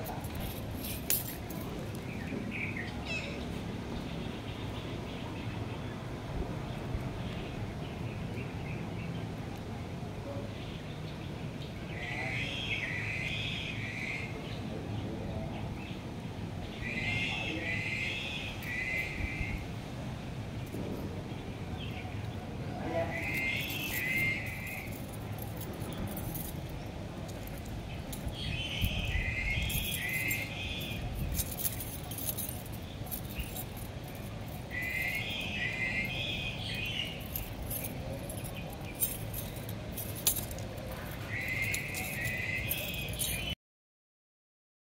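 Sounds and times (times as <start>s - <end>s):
light clicks and rattles: 0.0s - 2.2s, 29.7s - 35.3s, 37.0s - 43.6s
steady outdoor hum: 0.0s - 43.6s.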